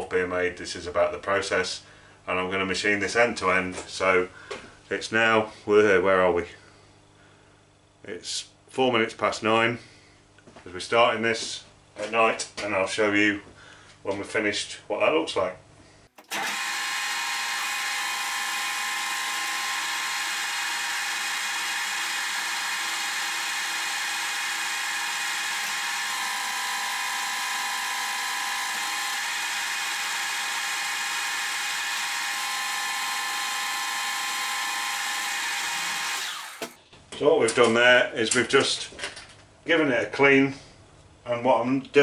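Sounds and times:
metal lathe cutting whine: 0:16.2 - 0:36.7.

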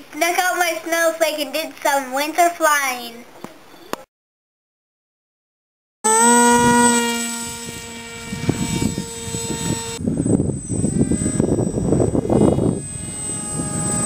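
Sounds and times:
electric motor and propeller whining: 0:06.1 - 0:14.0
wind on microphone: 0:06.2 - 0:14.0.

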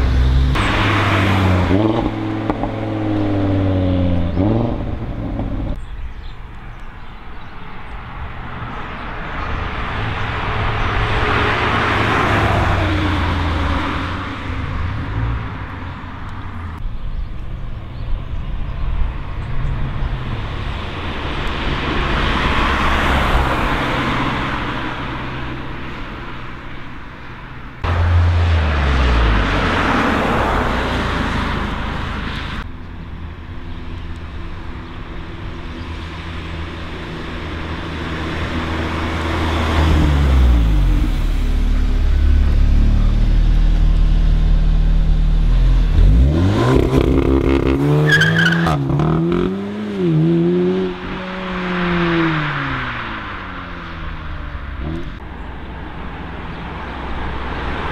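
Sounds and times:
car engine revving: 0:00.0 - 0:05.8, 0:27.8 - 0:32.7, 0:34.2 - 0:57.9
cars driving past: 0:00.0 - 0:17.5, 0:18.2 - 0:57.9.

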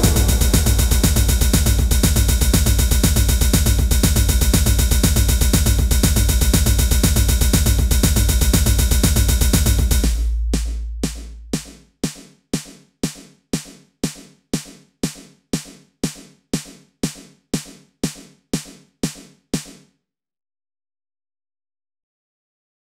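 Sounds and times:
deep bass note: 0:00.0 - 0:04.3, 0:08.3 - 0:11.8
drum machine hits: 0:00.0 - 0:19.8.

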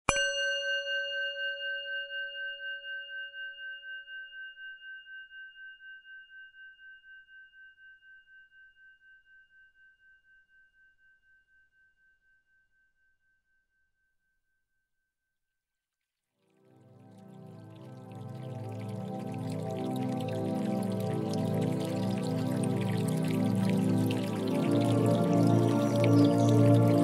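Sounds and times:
singing bowl ringing: 0:00.1 - 0:04.0.

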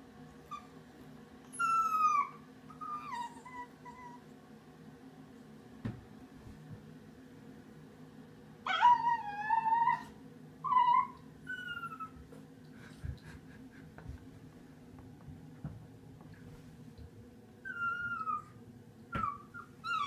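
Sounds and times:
puppy whining: 0:00.4 - 0:00.8, 0:01.4 - 0:04.3, 0:08.7 - 0:12.3, 0:17.6 - 0:20.0.

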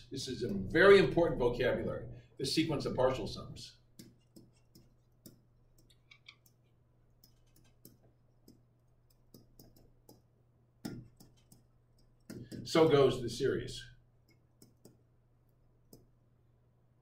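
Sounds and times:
faint clicks and taps: 0:04.0 - 0:12.7, 0:14.2 - 0:15.0.

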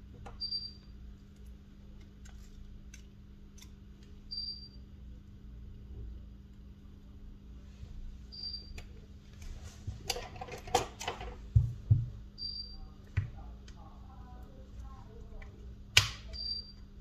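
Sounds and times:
steady low hum: 0:00.0 - 0:17.0
clicks and rustling of handled parts: 0:09.4 - 0:11.4.

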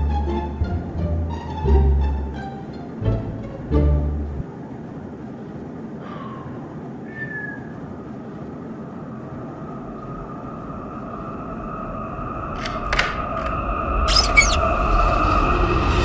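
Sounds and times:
short squeaks: 0:13.4 - 0:14.7.

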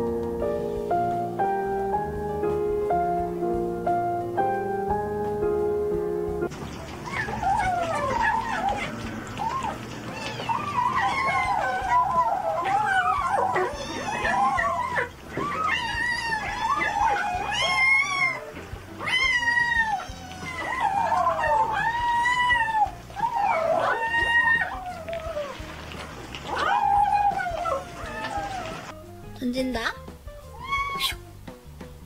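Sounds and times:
kittens mewing: 0:07.0 - 0:25.8, 0:26.4 - 0:28.9, 0:30.5 - 0:31.2.

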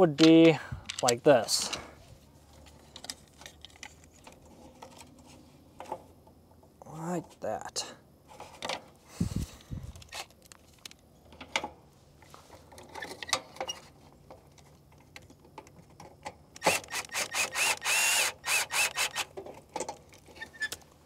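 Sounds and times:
clicks and rattles of handling: 0:00.0 - 0:01.9, 0:02.5 - 0:06.7, 0:09.9 - 0:16.7, 0:19.3 - 0:20.9
cordless drill driving screw: 0:16.6 - 0:19.3.

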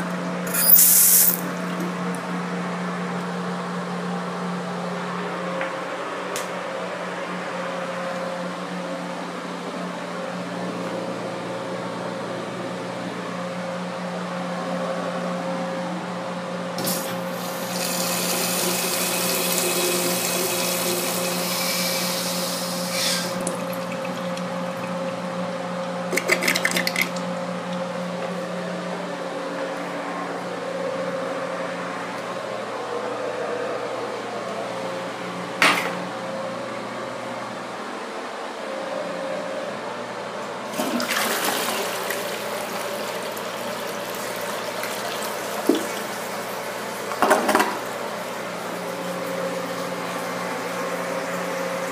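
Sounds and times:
urinal flushing: 0:00.4 - 0:02.0, 0:16.8 - 0:28.0, 0:40.7 - 0:51.9.

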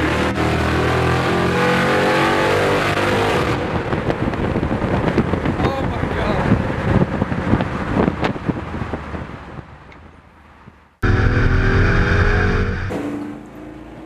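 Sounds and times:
car exhaust crackling: 0:11.0 - 0:12.9
engine drone: 0:11.0 - 0:13.5.

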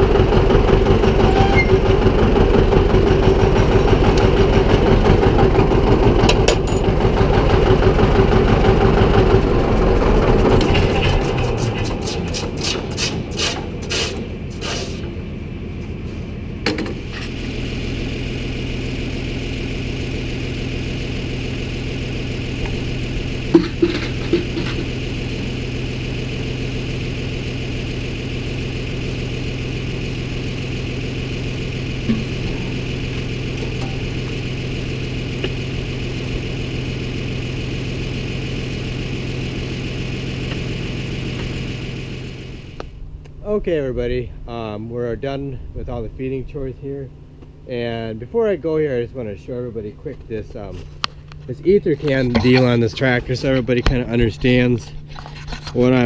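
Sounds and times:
tractor engine idling: 0:00.0 - 0:56.0
scrapes and knocks: 0:50.8 - 0:56.0.

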